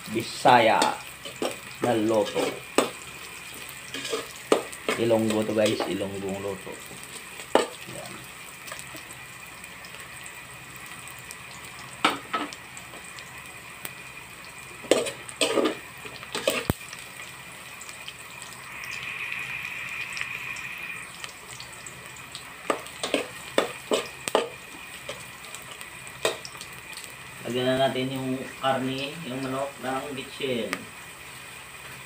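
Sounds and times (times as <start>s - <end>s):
onion sizzling in hot oil: 0.0s - 32.0s
metal spoon scraping pot: 3.9s - 4.3s.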